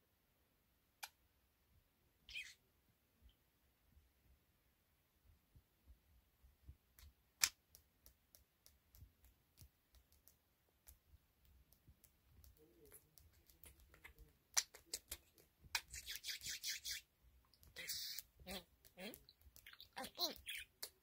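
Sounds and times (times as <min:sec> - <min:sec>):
bird beak clicking: 0:11.6 - 0:17.0, 0:17.6 - 0:21.0.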